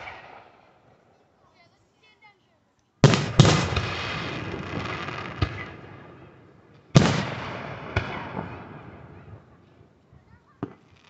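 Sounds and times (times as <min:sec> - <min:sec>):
firework bangs with echo: 0:03.0 - 0:06.2, 0:06.9 - 0:09.4
small firework cracks: 0:06.8 - 0:09.8, 0:10.5 - 0:11.0.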